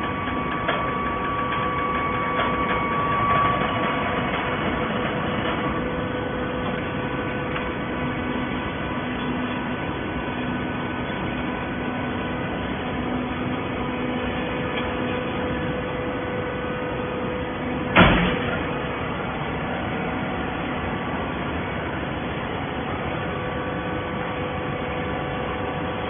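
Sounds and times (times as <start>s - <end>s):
baler machine hum and whine: 0.0s - 26.0s
loud machine clunk: 17.8s - 19.1s.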